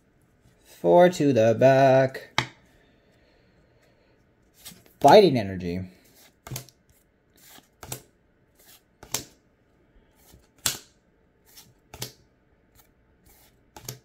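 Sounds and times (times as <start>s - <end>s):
trading cards being flipped: 6.1s - 9.4s.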